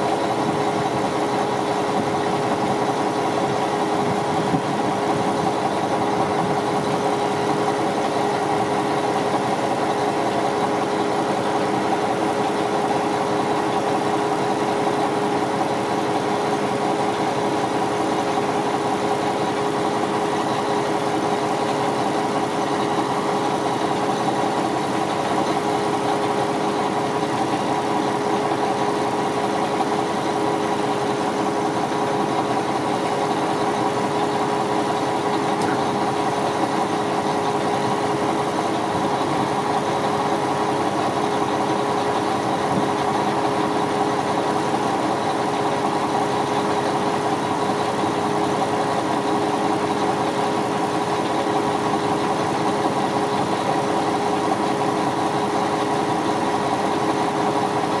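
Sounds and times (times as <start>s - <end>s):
constant whine: 0.0s - 58.0s
diesel truck engine idling: 0.0s - 58.0s.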